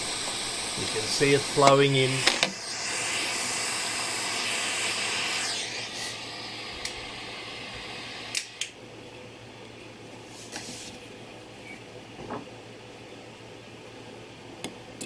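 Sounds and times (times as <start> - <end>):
gas torch flame hissing: 0.0 - 8.8
sharp clicks: 8.3 - 8.7.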